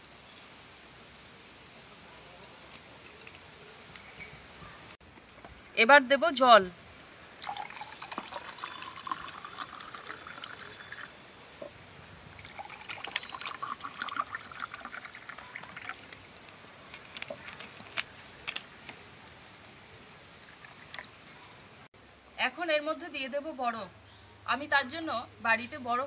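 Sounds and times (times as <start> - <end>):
light drips and ticks: 2.4 - 4.1, 11.6 - 21.9
water pouring into glass: 7.4 - 11.2, 12.4 - 16.4.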